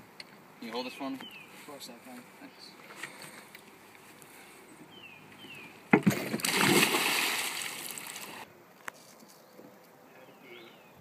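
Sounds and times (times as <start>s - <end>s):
body smacking into water: 6.0s - 8.4s
water splashing: 6.0s - 8.5s.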